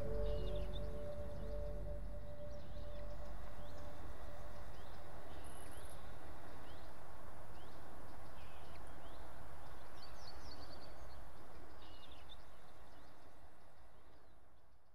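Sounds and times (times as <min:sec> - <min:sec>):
bird chirps: 0:00.0 - 0:06.0.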